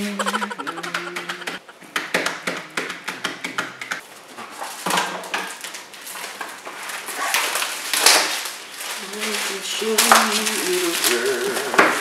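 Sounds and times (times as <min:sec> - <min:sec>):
packaging rustling: 0:04.0 - 0:12.0.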